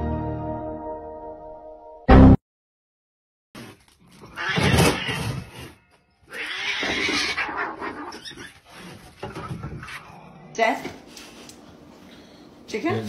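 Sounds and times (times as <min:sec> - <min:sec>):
cat crying out angrily: 0:04.2 - 0:08.6.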